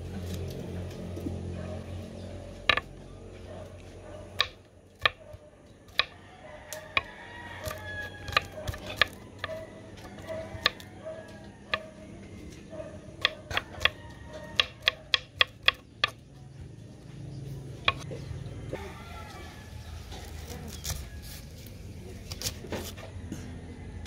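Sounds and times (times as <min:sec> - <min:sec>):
knife chopping on wooden board: 0:02.6 - 0:02.9, 0:04.4 - 0:10.8, 0:13.2 - 0:16.2, 0:17.8 - 0:18.1.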